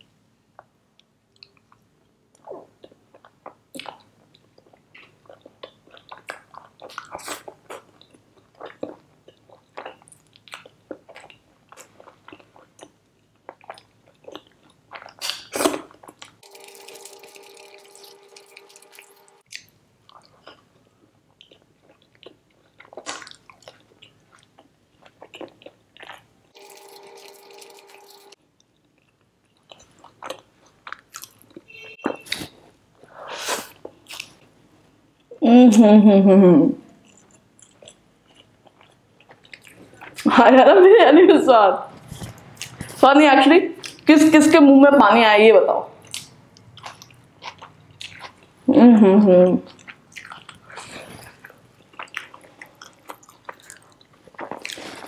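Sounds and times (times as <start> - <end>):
wet chewing and lip-smacking: 46.0 - 48.6, 49.6 - 55.0.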